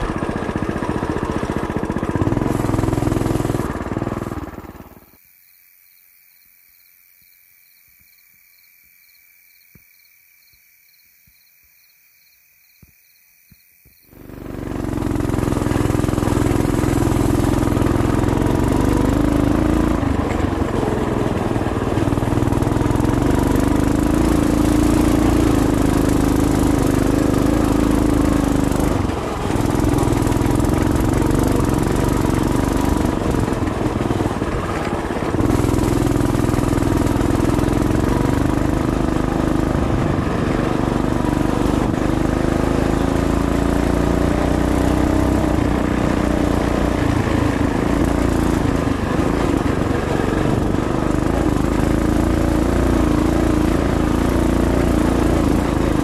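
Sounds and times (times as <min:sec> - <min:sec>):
small engine running loud: 0:00.0 - 0:05.2, 0:14.0 - 0:56.0
wind and road noise: 0:00.0 - 0:05.3, 0:12.8 - 0:56.0
crickets trilling: 0:04.8 - 0:14.3.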